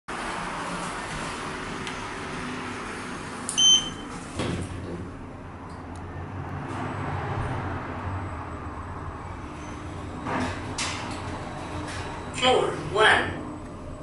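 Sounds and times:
elevator doors shutting: 0.2 - 5.9, 9.0 - 14.0
short high electronic beep: 3.6 - 4.1
elevator motor hum: 7.8 - 14.0.

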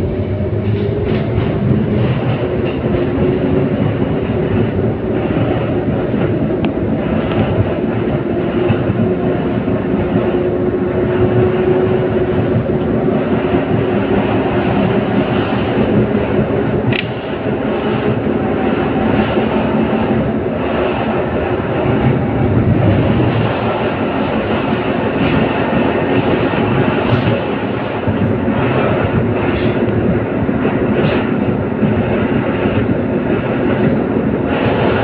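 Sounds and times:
tram running on rails: 0.0 - 35.0
whine: 18.4 - 24.9.

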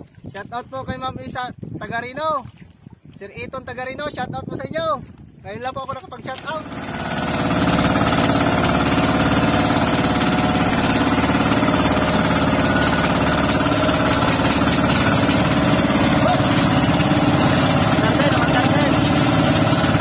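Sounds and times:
boat engine chugging: 6.1 - 20.0.

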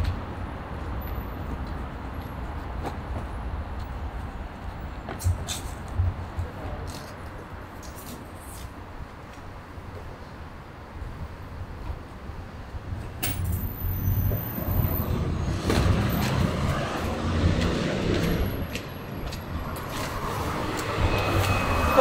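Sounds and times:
road traffic: 0.0 - 22.0
vehicle engine rumbling: 12.8 - 22.0.

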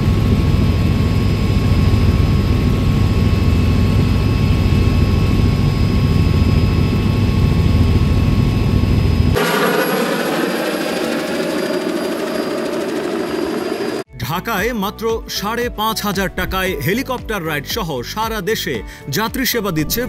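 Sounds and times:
helicopter engine and rotor drone: 0.0 - 14.1
high-pitched whines: 9.4 - 14.1.

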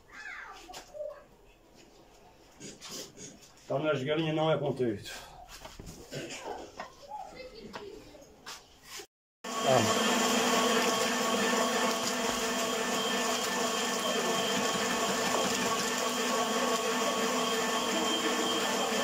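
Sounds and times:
machine humming: 9.5 - 19.0.

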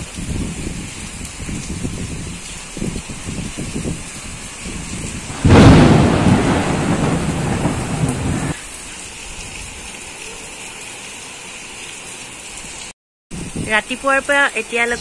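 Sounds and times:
rain hiss: 0.0 - 15.0
thunderclap rumbling: 0.3 - 8.6.

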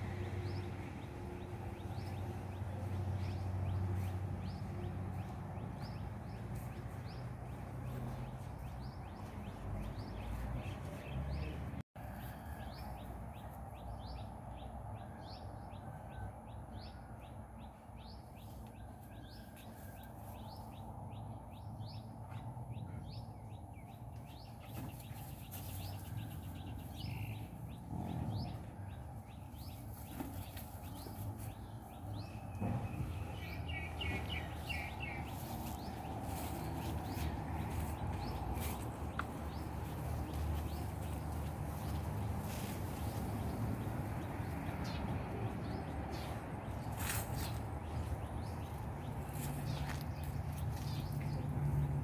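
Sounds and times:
birds chirping: 17.6 - 52.0.

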